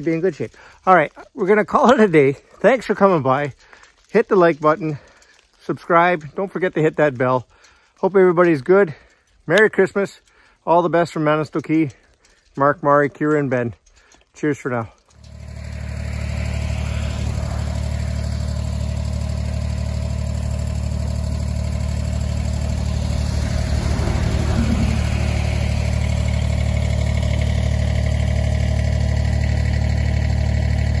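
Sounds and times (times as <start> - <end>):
tractor diesel engine idling: 15.2 - 31.0.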